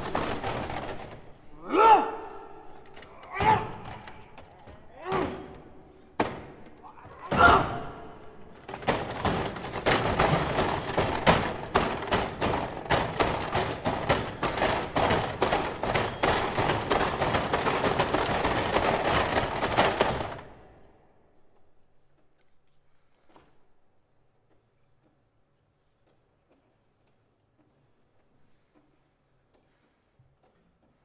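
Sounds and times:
foosball table hits and rattles: 0:00.0 - 0:01.4, 0:05.1 - 0:07.8, 0:08.5 - 0:20.6.

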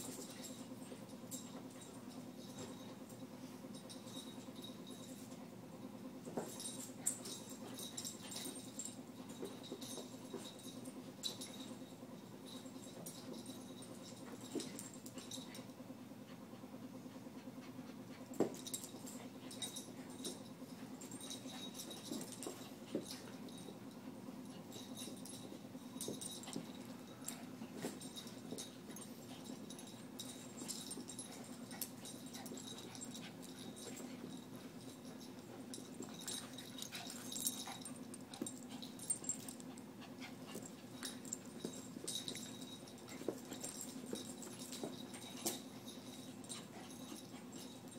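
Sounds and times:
dog play noises: 0:00.0 - 0:47.9
dogs scuffling on carpet: 0:18.2 - 0:47.9.

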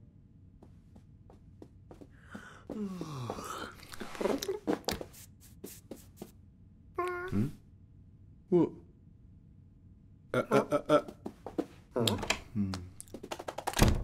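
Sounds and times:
shuffling slipper footsteps: 0:00.6 - 0:06.4.

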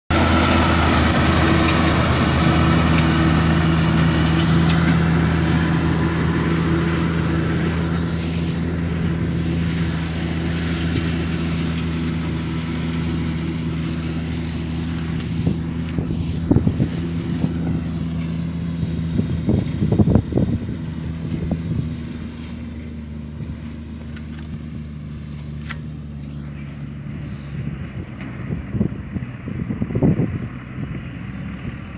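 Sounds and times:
tractor engine drone: 0:00.1 - 0:31.9
forage chopper hiss: 0:00.2 - 0:20.1.

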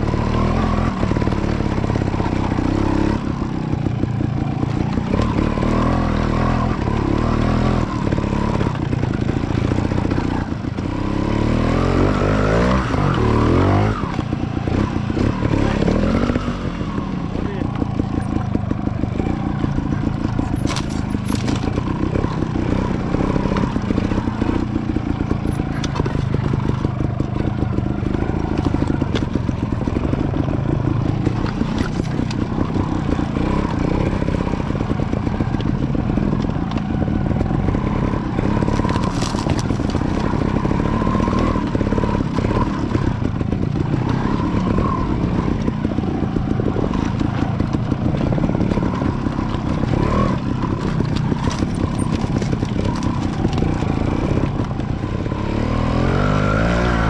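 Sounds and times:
motorcycle engine running: 0:00.0 - 0:57.0
bike knocking over rocks: 0:20.0 - 0:22.4, 0:38.4 - 0:41.9, 0:46.9 - 0:54.8.

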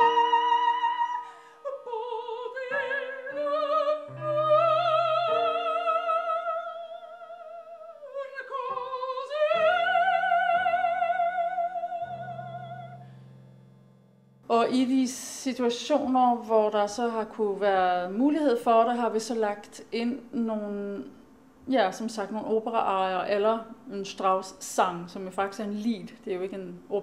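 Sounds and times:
operatic soprano singing: 0:00.0 - 0:13.0
piano accompaniment: 0:00.0 - 0:14.9.

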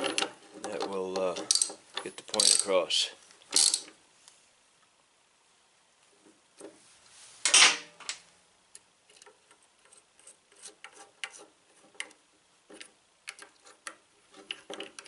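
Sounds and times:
wrench clanking on concrete: 0:00.0 - 0:02.7.

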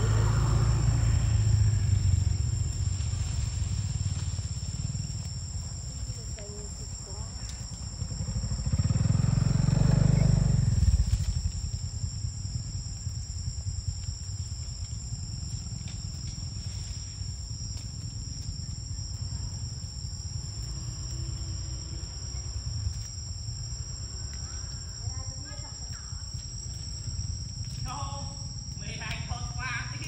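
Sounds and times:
low rumble: 0:00.0 - 0:24.2
insect chorus: 0:00.0 - 0:30.0.

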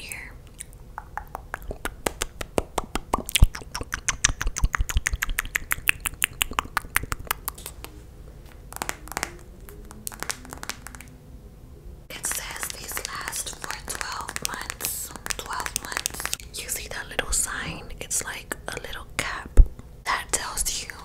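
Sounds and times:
wet mouth clicks and lip smacks: 0:00.4 - 0:08.0.

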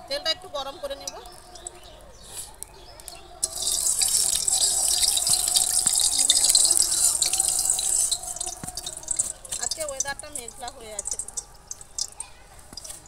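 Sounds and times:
oil sizzling in a wok: 0:03.4 - 0:13.0.

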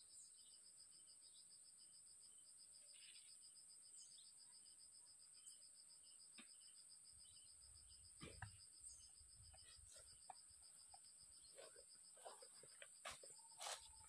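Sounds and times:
insects buzzing and chirping: 0:00.0 - 0:14.0.

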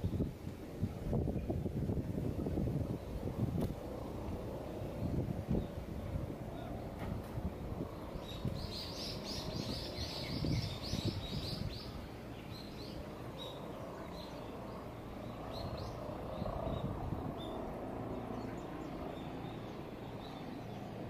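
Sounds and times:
low background hum: 0:00.0 - 0:21.0
small bird chirping: 0:07.9 - 0:17.6.

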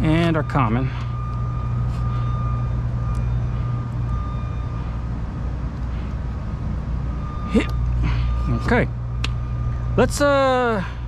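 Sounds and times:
thin high whine: 0:00.0 - 0:05.2.

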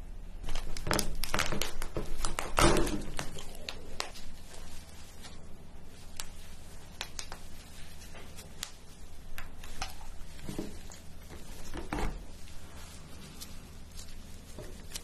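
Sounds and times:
crab shell cracking and snapping: 0:00.7 - 0:04.2.

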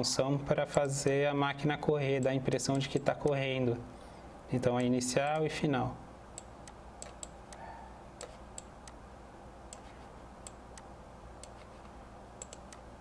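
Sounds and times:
faint room hum: 0:00.0 - 0:13.0
mouse buttons clicking: 0:06.4 - 0:07.6, 0:08.2 - 0:09.0, 0:09.7 - 0:12.8.

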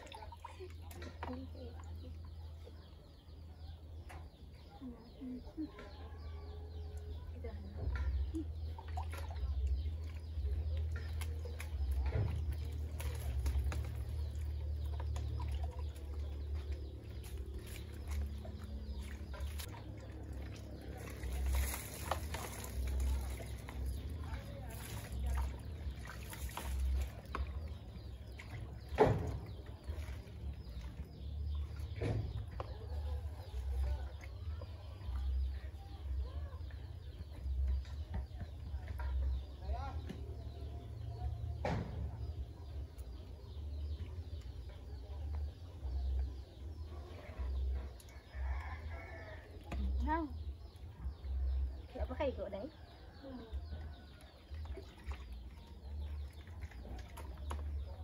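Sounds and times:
birds calling: 0:00.0 - 0:58.0
chickens clucking and peeping: 0:00.0 - 0:58.0
water splashing over head: 0:08.6 - 0:32.5, 0:53.8 - 0:58.0.

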